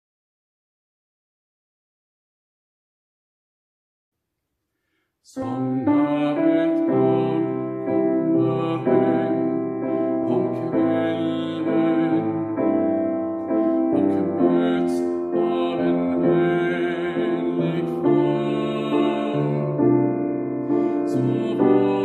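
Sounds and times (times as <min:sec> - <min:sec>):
man singing gospel song: 0:05.3 - 0:20.0, 0:20.6 - 0:22.0
piano accompaniment: 0:05.3 - 0:22.0.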